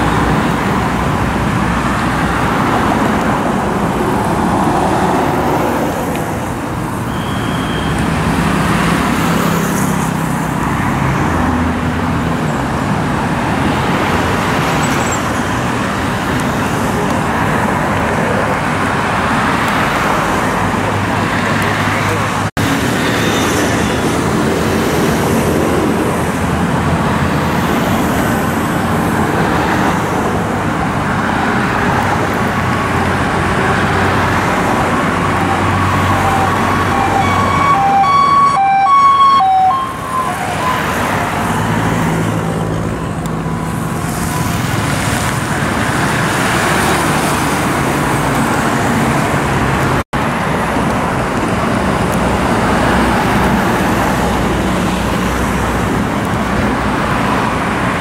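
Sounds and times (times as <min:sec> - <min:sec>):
dense road traffic: 0:00.0 - 0:58.0
two-tone emergency siren: 0:35.2 - 0:42.2.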